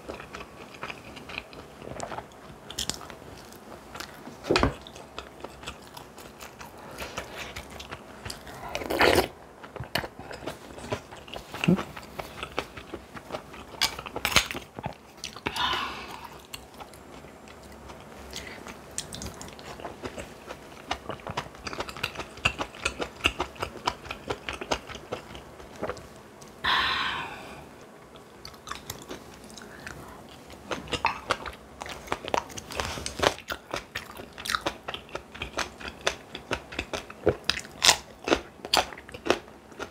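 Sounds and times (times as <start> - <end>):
crunchy bites and chewing: 30.6 - 39.9.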